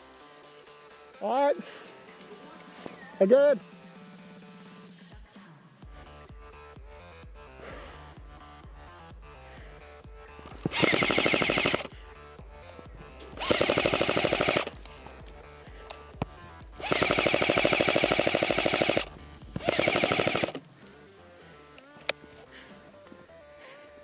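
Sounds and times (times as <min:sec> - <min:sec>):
airsoft gun firing full auto: 0:10.6 - 0:11.9, 0:13.4 - 0:14.9, 0:16.8 - 0:20.6.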